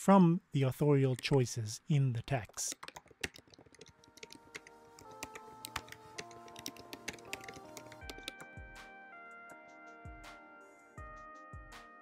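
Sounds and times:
soft background music: 0.0 - 12.0
keyboard key clicks: 1.1 - 1.5, 2.4 - 8.5.

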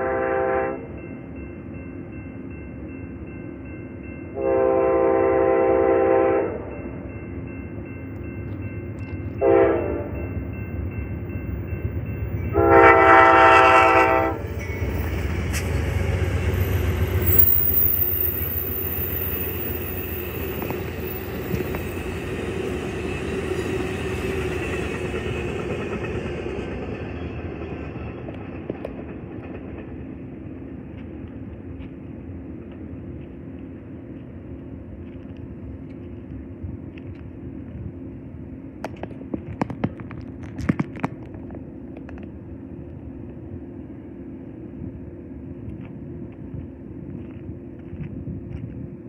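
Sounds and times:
train horn blasts: 0.0 - 0.9, 4.3 - 6.8, 9.4 - 10.3, 12.5 - 16.4
train wheels rumbling on rails: 6.4 - 49.0.

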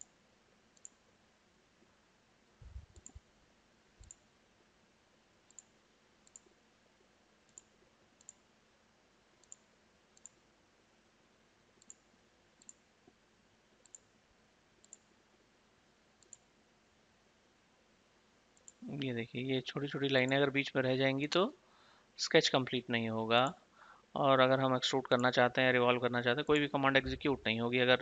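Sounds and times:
faint computer mouse clicks: 0.8 - 1.0, 2.8 - 3.2, 4.0 - 4.2, 5.5 - 6.6, 7.5 - 8.4, 9.4 - 10.4, 11.8 - 13.2, 13.8 - 14.1, 14.8 - 15.1, 16.2 - 16.5.

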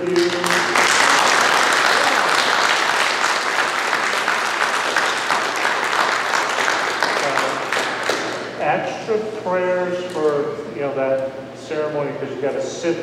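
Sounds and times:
congregation applauding: 0.0 - 8.6.

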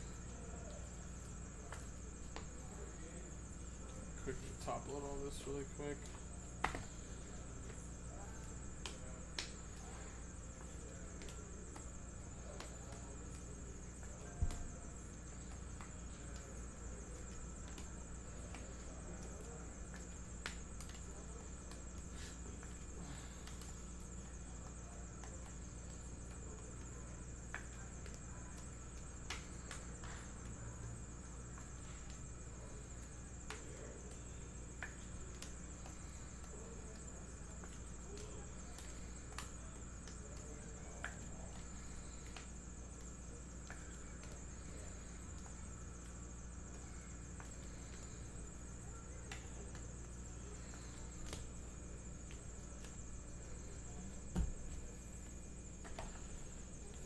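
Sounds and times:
electrical hum: 0.0 - 57.0.

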